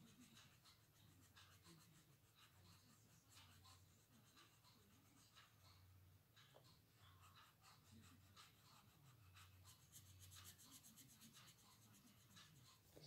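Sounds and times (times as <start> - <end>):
blending stump rubbing on paper: 7.2 - 13.0.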